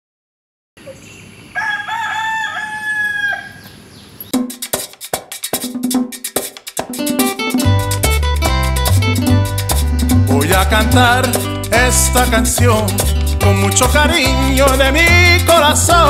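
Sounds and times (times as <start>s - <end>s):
rooster crowing: 1.5s - 4.0s
upbeat latin dance music: 4.3s - 16.0s.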